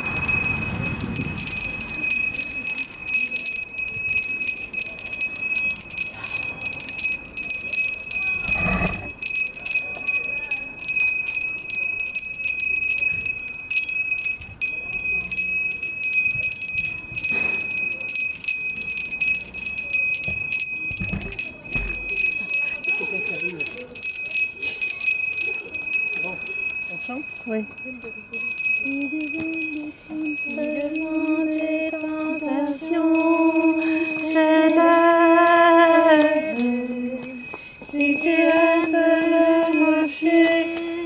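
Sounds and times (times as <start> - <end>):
bells ringing: 0.0 - 41.0.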